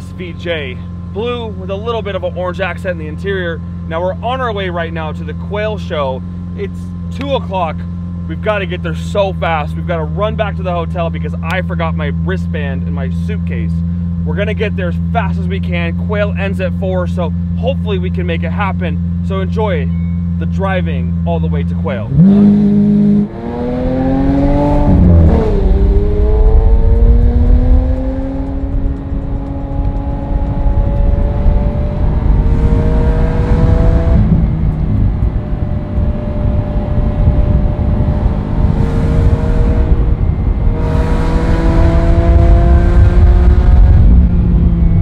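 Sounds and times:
car engine accelerating through gears: 0:22.0 - 0:45.0.

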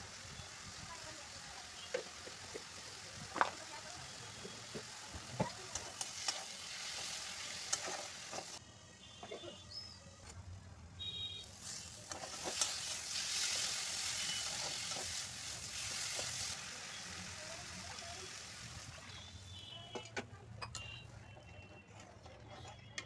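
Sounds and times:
water sizzling in hot pan: 0:00.0 - 0:08.6, 0:11.4 - 0:19.6.

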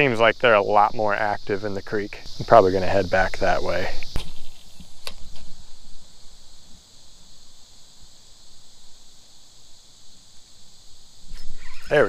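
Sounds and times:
insects chirping: 0:00.0 - 0:12.0
sharp click: 0:04.0 - 0:05.5.

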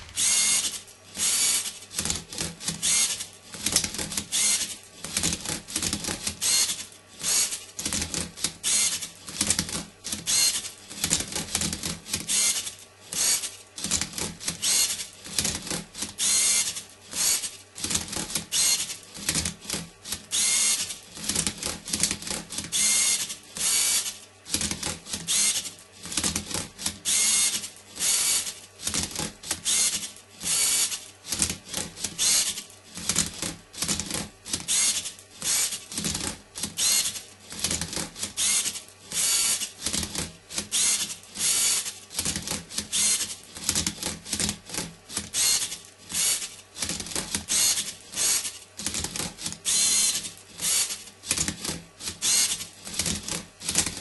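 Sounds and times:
robot motors whirring in bursts: 0:00.0 - 0:26.4, 0:27.0 - 0:54.0
plastic parts clicking and clattering: 0:24.5 - 0:30.2, 0:30.8 - 0:54.0.

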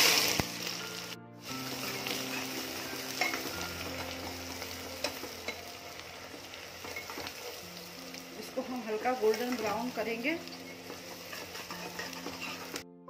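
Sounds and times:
onions sizzling in oil: 0:00.0 - 0:12.8
metal ladle scraping pot: 0:10.9 - 0:12.8.

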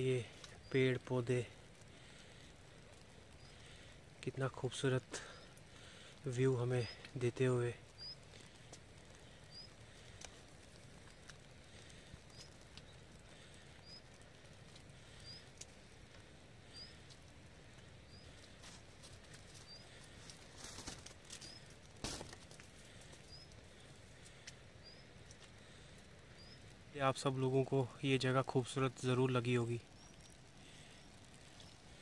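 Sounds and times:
footsteps on wet snowy path: 0:16.9 - 0:24.6.

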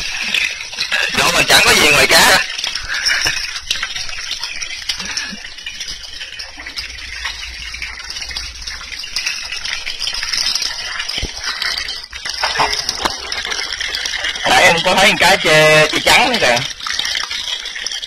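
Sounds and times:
hand rinsing wet fish: 0:00.0 - 0:18.0
tap water gushing: 0:00.0 - 0:18.0.

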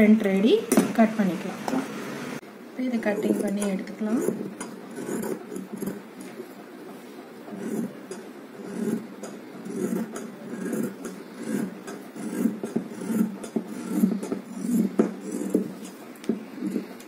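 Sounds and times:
scissors snipping fabric: 0:07.6 - 0:15.7.

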